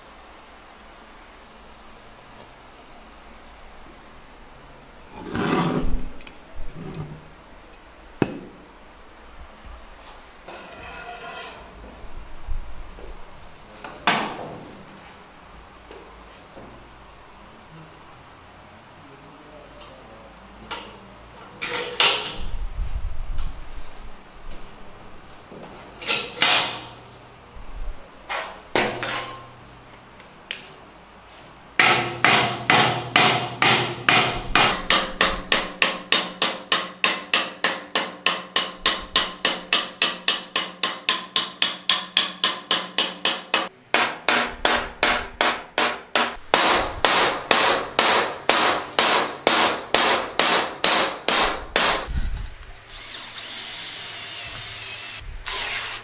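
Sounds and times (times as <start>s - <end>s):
electric drill whining: 52.9s - 56.0s.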